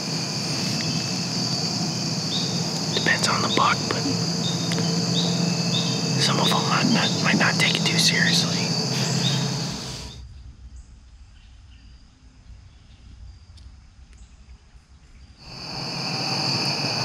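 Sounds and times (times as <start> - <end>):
crickets and insects trilling: 0.0 - 10.2, 15.3 - 17.0.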